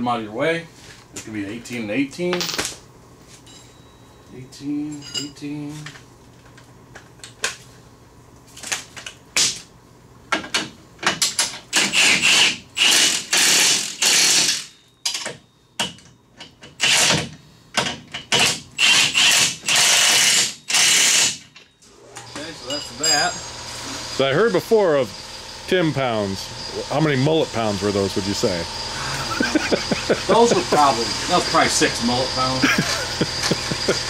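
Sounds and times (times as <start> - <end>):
ratchet wrench clicking: 11.8 - 14.7, 18.4 - 21.4.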